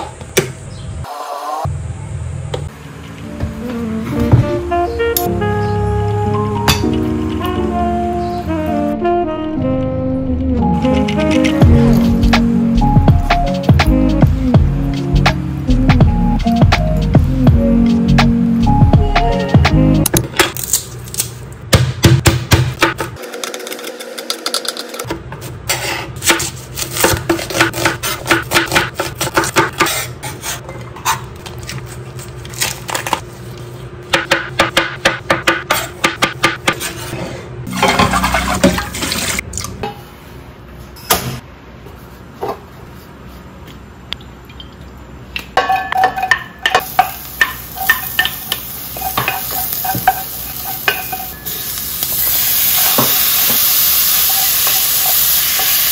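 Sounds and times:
garlic and onion sizzling: 46.8s - 55.9s.

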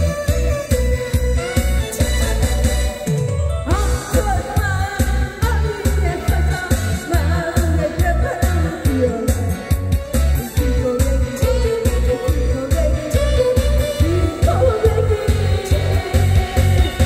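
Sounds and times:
amplified accompaniment with beat: 0.0s - 17.0s
woman singing into a microphone: 3.6s - 17.0s.

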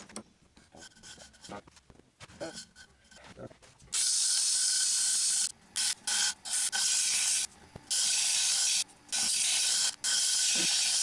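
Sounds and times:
sandpaper hissing on spinning wood: 4.0s - 11.0s.

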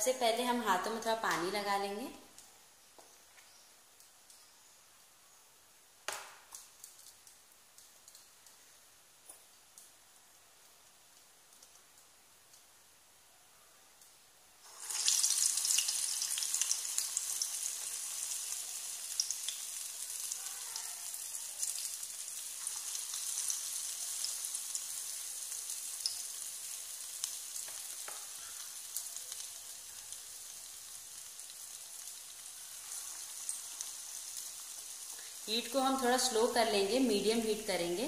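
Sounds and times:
batter sizzling in hot oil: 14.6s - 38.0s.

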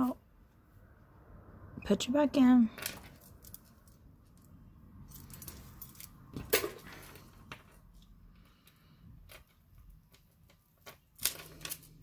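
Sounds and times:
metal chains and beads jingling: 5.0s - 7.1s.

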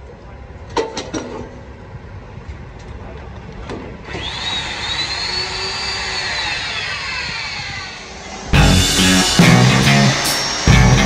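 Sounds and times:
electric wrench motor whine: 4.0s - 11.0s.

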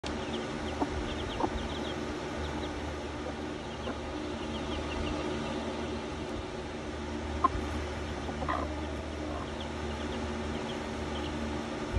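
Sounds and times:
chicks peeping: 0.0s - 11.9s
steady low hum: 0.0s - 11.9s.

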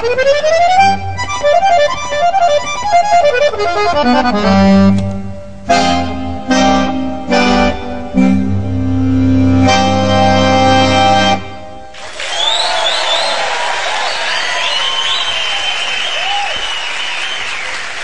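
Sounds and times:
piano accordion: 0.0s - 11.9s.

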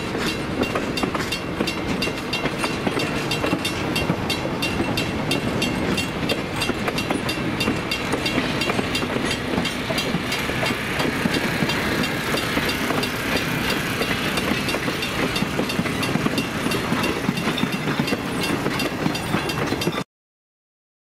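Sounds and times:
train rumbling over rails: 0.0s - 20.0s
wheels clicking over rail joints: 0.0s - 20.0s.

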